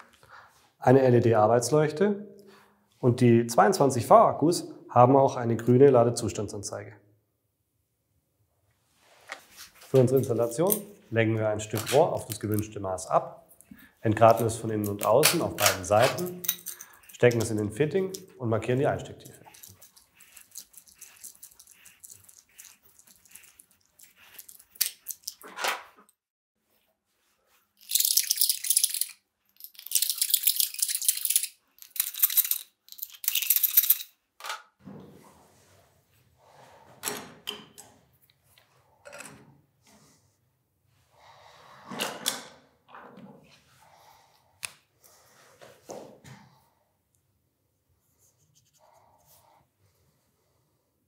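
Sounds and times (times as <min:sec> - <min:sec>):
pen scratching: 0:19.4 - 0:25.4.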